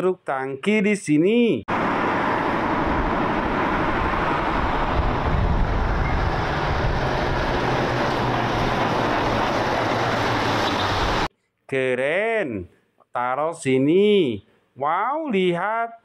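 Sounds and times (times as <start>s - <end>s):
diesel truck engine: 1.7s - 11.3s
tyre and road noise: 1.7s - 11.3s.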